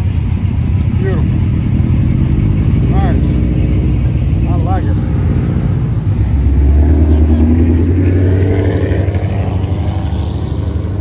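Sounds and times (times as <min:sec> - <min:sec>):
car engine rumbling: 0:00.0 - 0:11.0.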